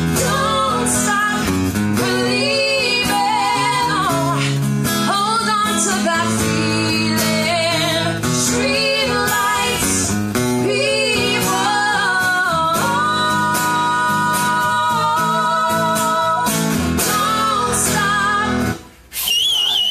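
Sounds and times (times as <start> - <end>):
electric guitar: 0.0 - 19.0
person singing: 10.6 - 18.8.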